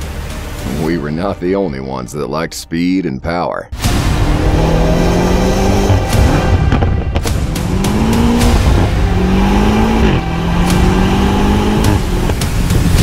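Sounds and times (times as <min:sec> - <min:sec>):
car engine accelerating through gears: 0:03.9 - 0:13.0.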